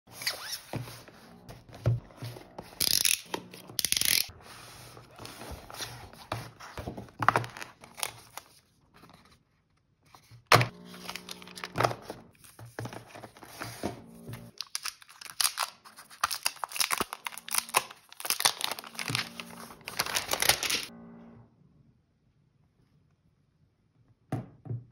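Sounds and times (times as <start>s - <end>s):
paper and plastic rustling: 4.0s - 20.9s
cardboard box scraping: 10.7s - 14.5s.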